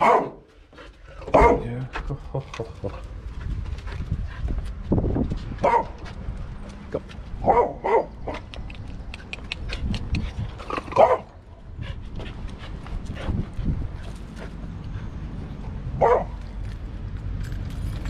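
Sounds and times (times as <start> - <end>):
dog yelping: 16.0 - 16.3.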